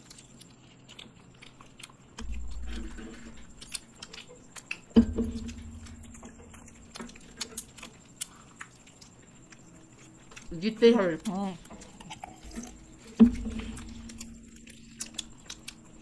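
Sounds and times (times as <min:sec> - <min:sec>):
people chewing: 0:00.0 - 0:16.0
low thumps: 0:02.2 - 0:04.0, 0:05.0 - 0:07.4
low hum: 0:02.2 - 0:08.6, 0:09.2 - 0:16.0.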